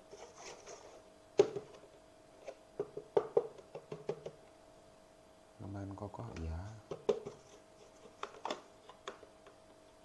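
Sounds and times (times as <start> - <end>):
plastic fan housing knocking: 2.8 - 4.4.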